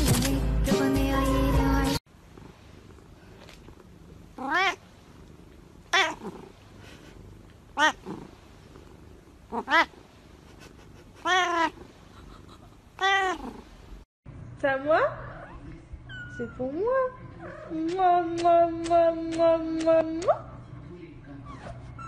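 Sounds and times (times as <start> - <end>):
cat meowing: 4.4 - 4.8, 5.9 - 6.4, 7.8 - 8.2, 9.5 - 10.0, 11.2 - 11.8, 13.0 - 13.6.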